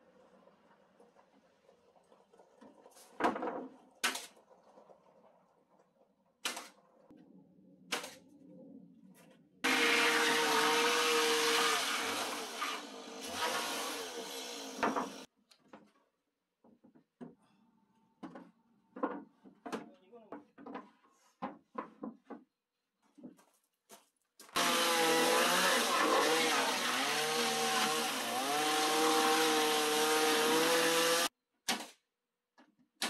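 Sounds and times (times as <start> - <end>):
handheld power tool running: 9.7 - 15.3, 24.6 - 31.3.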